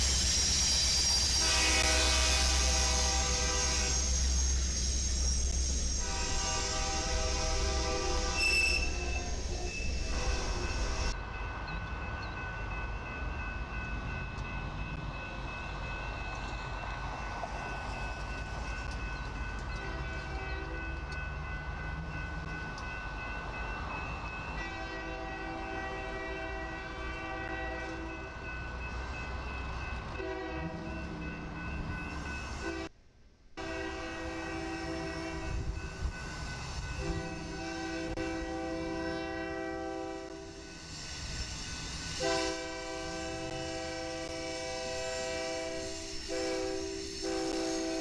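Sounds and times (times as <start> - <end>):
freight train rumble: 0.0 - 48.0
locomotive air horn blasts: 1.4 - 4.1, 6.0 - 10.7, 24.6 - 28.1, 30.2 - 30.9, 33.6 - 35.6, 37.0 - 40.6, 42.2 - 48.0.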